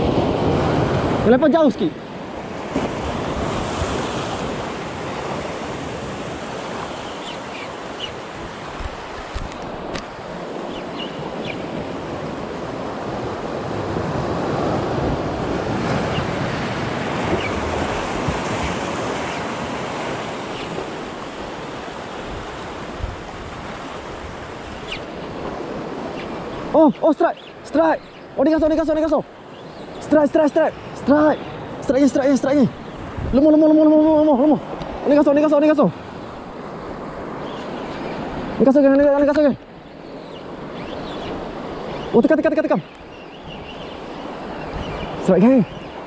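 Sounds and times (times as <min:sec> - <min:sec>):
sea waves washing: 0:00.0 - 0:46.0
wind buffeting microphone: 0:02.3 - 0:26.8, 0:32.6 - 0:35.2.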